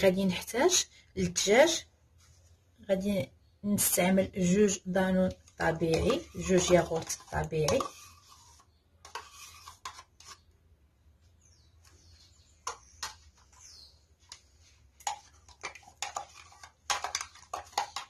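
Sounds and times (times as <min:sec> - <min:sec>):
spoon scraping plastic cups: 0:04.4 - 0:10.6, 0:11.7 - 0:18.0
spoon tapping cups and bowl: 0:15.0 - 0:18.0.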